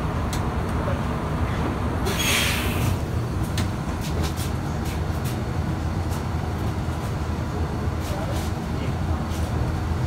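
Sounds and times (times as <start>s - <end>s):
bus engine rumble: 0.0s - 10.0s.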